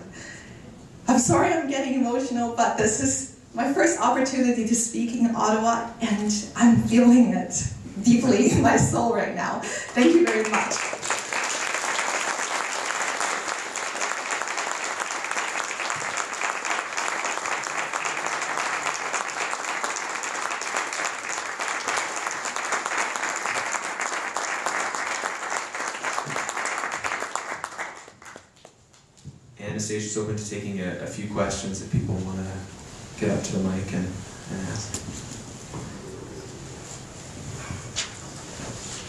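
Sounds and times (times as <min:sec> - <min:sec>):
audience applauding: 0:09.9 - 0:28.8.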